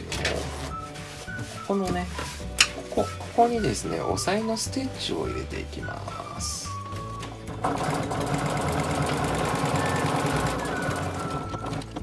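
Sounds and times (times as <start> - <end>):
electric sewing machine stitching: 7.4 - 12.0.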